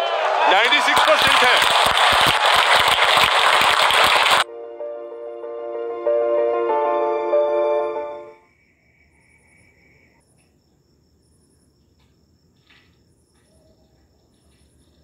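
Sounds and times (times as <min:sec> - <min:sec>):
high insect chirping: 0:08.4 - 0:15.0.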